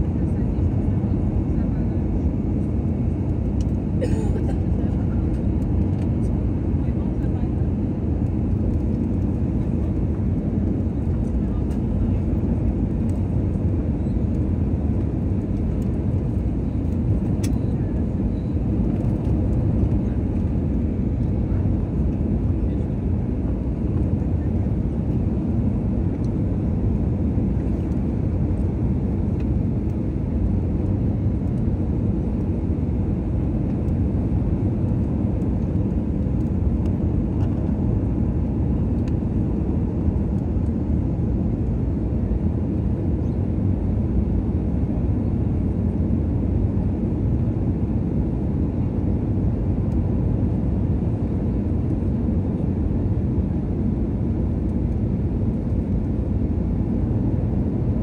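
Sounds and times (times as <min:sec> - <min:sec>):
airplane cabin engine drone: 0:00.0 - 0:58.0.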